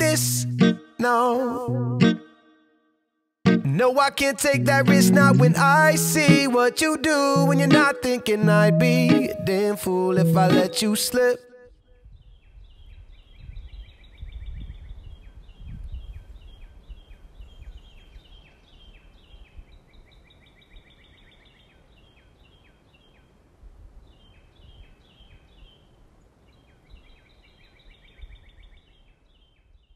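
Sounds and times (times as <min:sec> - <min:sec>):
birds chirping and trilling: 0:11.9 - 0:23.4, 0:24.0 - 0:29.9.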